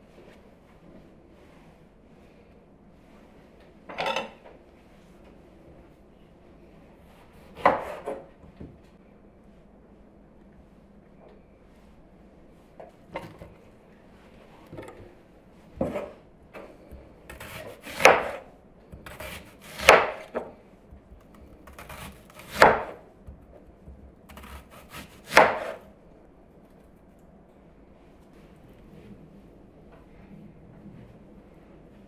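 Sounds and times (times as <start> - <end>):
knife slicing onion on board: 7.2 - 8.3, 15.8 - 25.9.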